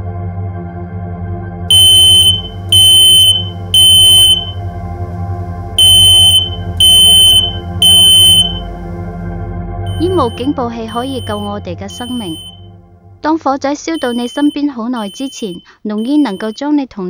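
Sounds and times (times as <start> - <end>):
low synth drone: 0.0 - 13.2
smoke alarm beeping: 1.7 - 4.6, 5.8 - 8.7, 9.9 - 12.6, 14.0 - 16.6.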